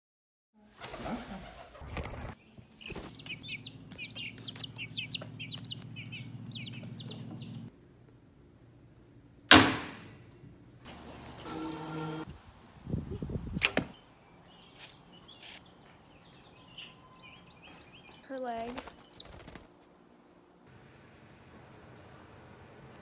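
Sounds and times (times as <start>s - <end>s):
steady low hum: 2.5s - 13.5s
chicks peeping: 2.6s - 7.7s
loud sharp crack: 9.5s - 10.1s.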